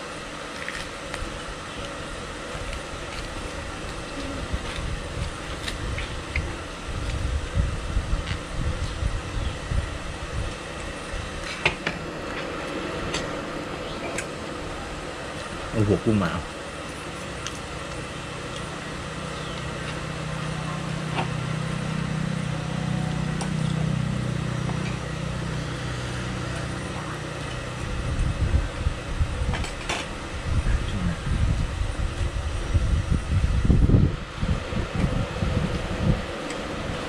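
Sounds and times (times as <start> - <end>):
low engine hum: 0.0 - 37.0
wind buffeting microphone: 2.9 - 11.5, 27.6 - 37.0.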